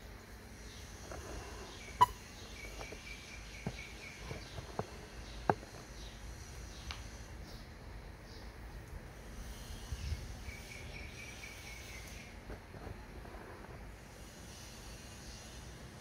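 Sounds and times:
faint high chirping: 0:00.6 - 0:04.6.

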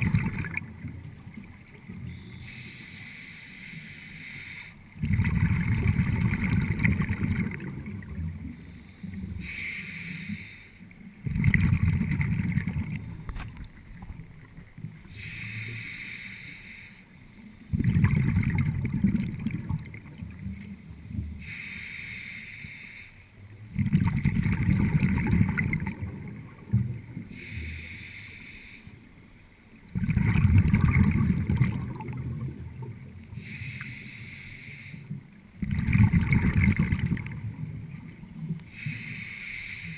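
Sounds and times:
exhaled bubbles rumbling: 0:00.0 - 0:02.4, 0:05.0 - 0:09.5, 0:11.1 - 0:15.2, 0:17.6 - 0:21.4, 0:23.5 - 0:27.3, 0:29.8 - 0:33.4, 0:35.5 - 0:38.7
regulator inhalation hiss: 0:02.4 - 0:04.8, 0:08.7 - 0:10.9, 0:15.1 - 0:17.3, 0:21.4 - 0:23.3, 0:27.3 - 0:29.0, 0:33.3 - 0:35.2, 0:38.7 - 0:39.9.

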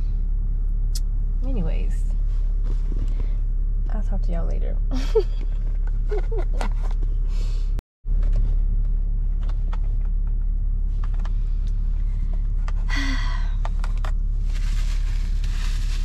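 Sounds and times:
car cabin rumble: 0:00.0 - 0:16.0
short rustle: 0:02.1 - 0:03.4, 0:14.4 - 0:16.0.

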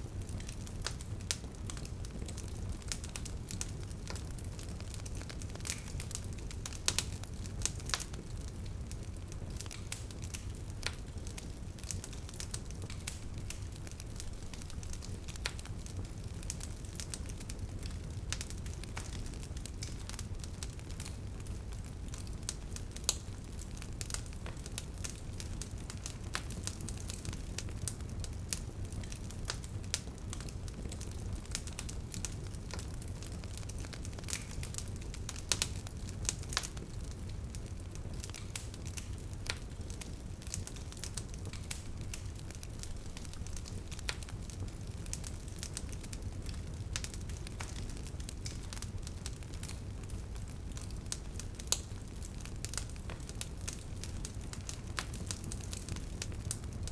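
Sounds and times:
low rumble of flame: 0:00.0 - 0:56.9
wood fire crackling and popping: 0:00.0 - 0:56.9.

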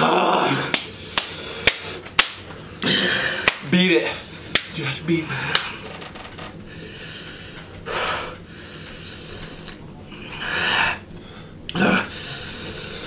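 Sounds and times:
man breathing hard: 0:02.8 - 0:04.5, 0:06.7 - 0:13.0.

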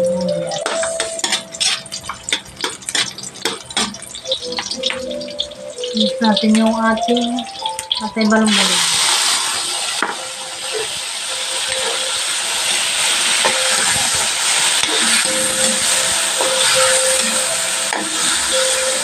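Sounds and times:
meat sizzling in oil: 0:00.0 - 0:19.0
spatula scraping pan: 0:00.6 - 0:04.1.

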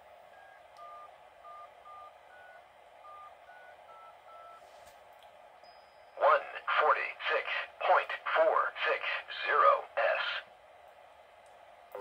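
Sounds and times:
faint touch-tone beeps: 0:00.3 - 0:04.7, 0:05.6 - 0:06.4.

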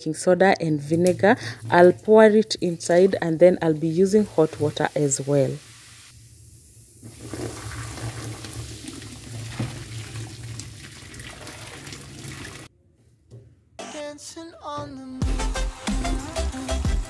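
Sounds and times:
liquid pouring into metal sink: 0:07.0 - 0:12.7.

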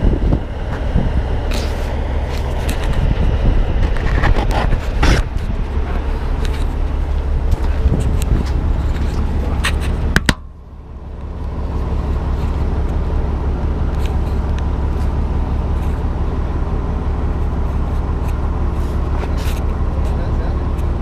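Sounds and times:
diesel truck engine running: 0:00.0 - 0:21.0.

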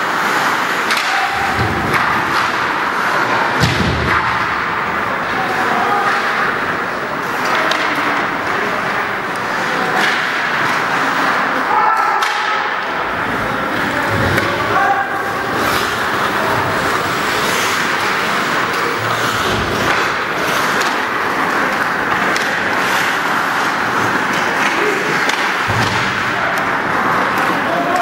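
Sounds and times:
knocks of sticks puck and boards: 0:00.0 - 0:28.0
skates scraping ice: 0:00.0 - 0:28.0.

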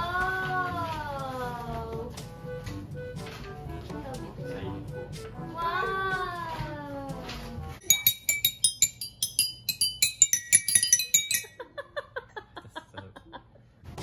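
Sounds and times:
toy xylophone notes: 0:07.8 - 0:11.6.

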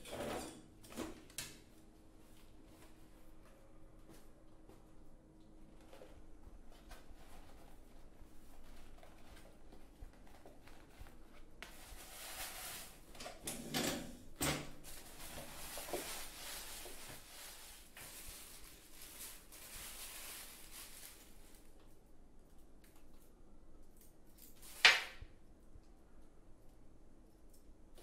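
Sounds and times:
rustling and shuffling: 0:00.1 - 0:13.4, 0:14.7 - 0:23.2.

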